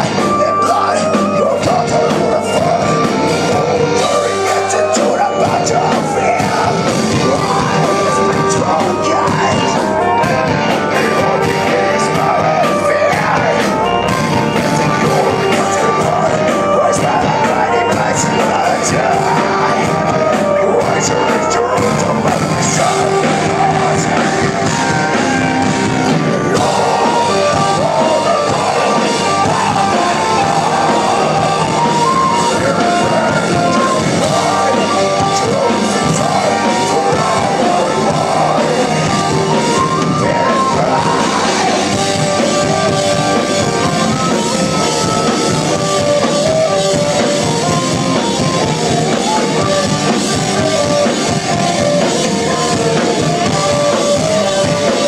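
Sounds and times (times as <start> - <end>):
live folk metal band: 0.0 - 55.0.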